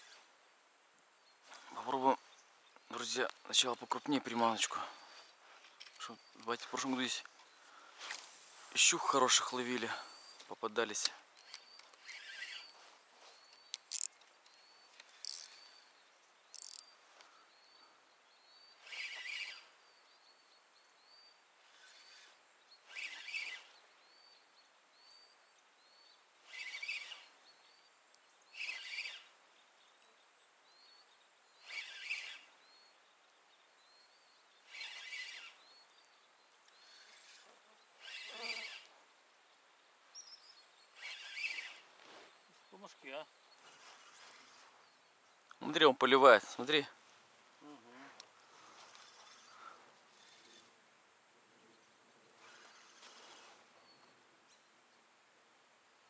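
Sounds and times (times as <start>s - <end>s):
spinning reel cranked: 11.5s - 12.7s, 13.8s - 14.1s, 15.1s - 15.6s, 16.5s - 16.9s, 18.8s - 19.7s, 21.7s - 23.7s, 26.5s - 27.3s, 28.6s - 29.3s, 31.6s - 32.5s, 34.7s - 35.6s, 36.8s - 38.9s, 41.0s - 41.8s
sharp clicks: 13.5s - 15.6s, 16.5s - 16.9s.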